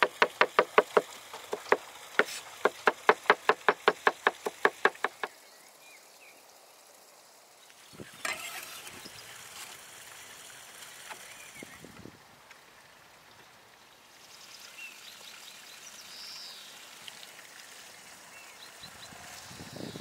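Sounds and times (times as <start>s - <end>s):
knife chopping on wooden board: 0.0s - 5.3s.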